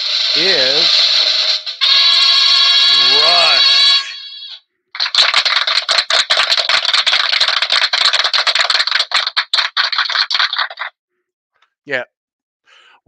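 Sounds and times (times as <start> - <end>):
rapid clicking rattle: 5.0 - 10.9.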